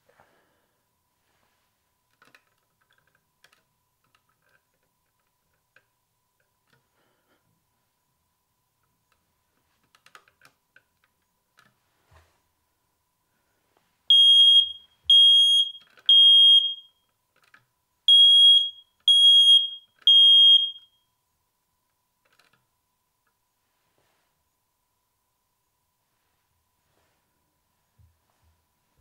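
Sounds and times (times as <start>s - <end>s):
smoke alarm beeping: 14.1s - 17.0s, 18.1s - 21.0s.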